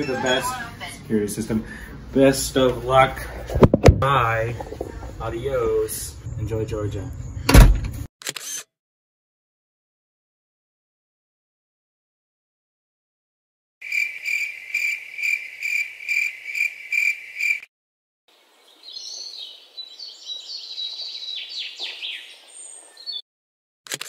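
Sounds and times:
birds twittering: 5.0 - 7.6, 18.3 - 23.2
cricket chirping: 13.8 - 17.7.

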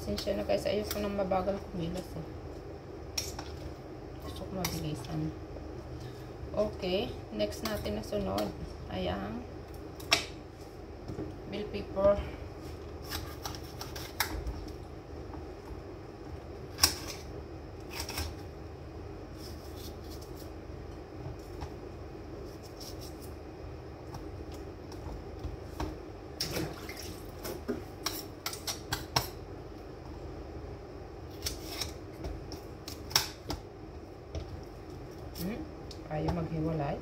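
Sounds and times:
steady background hum: 0.0 - 37.0.

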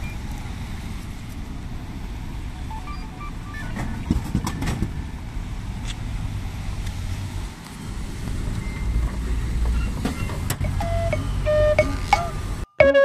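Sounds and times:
low rumble of traffic: 0.0 - 13.0
vending machine electronic beeps: 2.6 - 4.2, 10.1 - 13.0
sharp knocks and clatters: 4.0 - 5.0.

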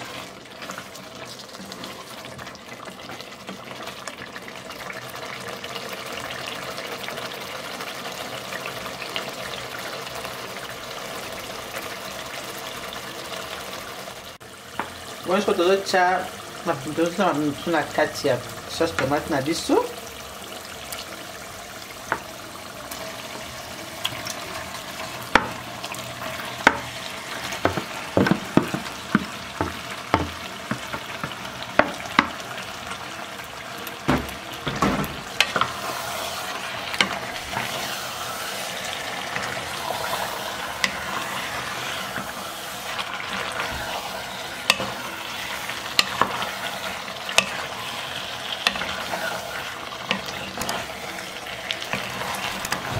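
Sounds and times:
wooden spoon stirring: 0.0 - 4.3, 23.0 - 52.9
sauce sizzling in a pot: 0.0 - 52.9
spoon knocking against pot: 26.7 - 26.9, 27.6 - 32.4.

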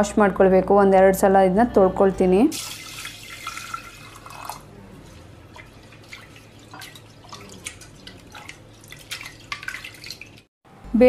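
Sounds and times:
small splashes and drips: 2.6 - 10.5
hand swishing lentils in water: 5.0 - 10.5.

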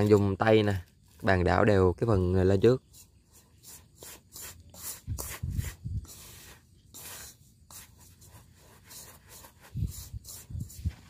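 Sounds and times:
fingers rustling through dry powder: 2.5 - 11.0.

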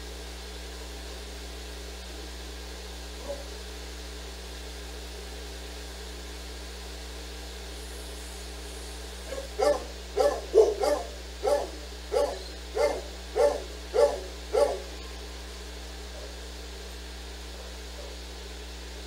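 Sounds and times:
dog barking: 3.2 - 3.6, 9.3 - 15.3, 16.1 - 16.5, 17.5 - 18.3.

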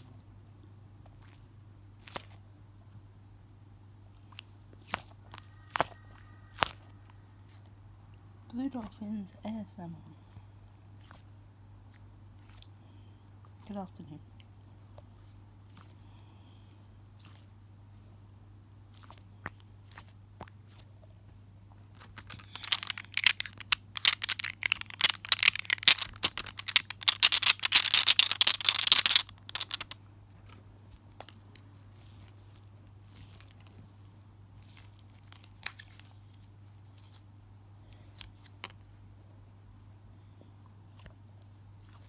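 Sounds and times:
fidget balls crinkling: 4.2 - 7.8, 18.9 - 37.3
low hum: 5.1 - 8.6.

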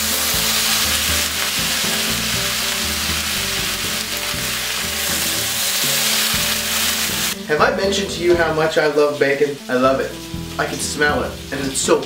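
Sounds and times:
bacon sizzling in skillet: 0.0 - 12.0.

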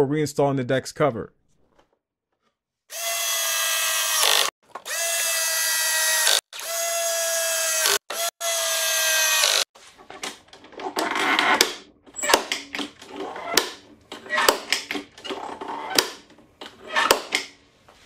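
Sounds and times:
clicks and rattles of handling: 9.9 - 17.5.

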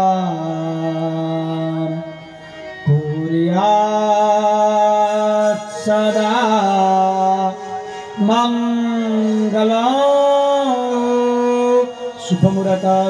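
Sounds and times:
man chanting slowly: 2.9 - 13.0.

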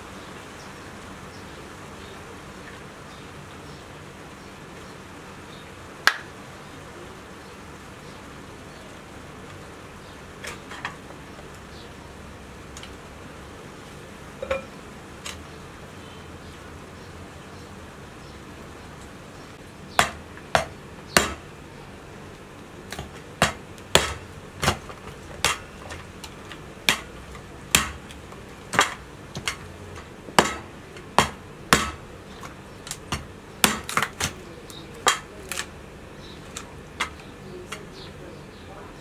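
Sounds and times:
knife chopping on metal tray: 20.0 - 21.4, 22.9 - 26.1, 26.8 - 34.4, 35.0 - 35.6.

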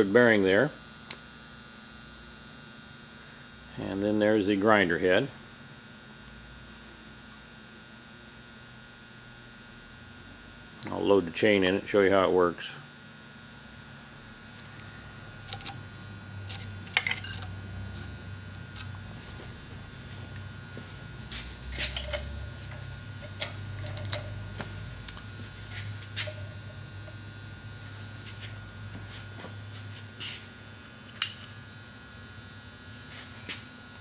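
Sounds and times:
electrical hum: 0.0 - 34.0
saw chain clinking: 16.5 - 17.5, 21.7 - 25.2.

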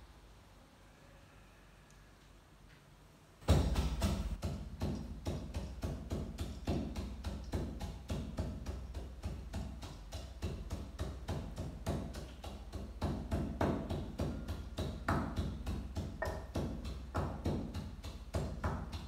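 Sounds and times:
wooden pestle pounding in mortar: 3.4 - 19.0.

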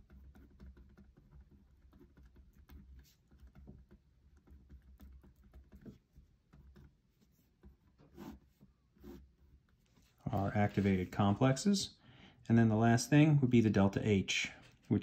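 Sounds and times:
pen scratching on paper: 0.0 - 11.1.

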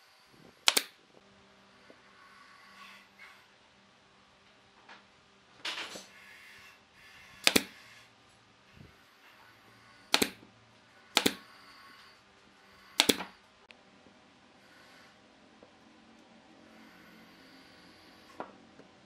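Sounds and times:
nail gun firing: 0.7 - 0.9, 7.4 - 7.8, 10.1 - 10.4, 11.2 - 11.4, 13.0 - 13.3.

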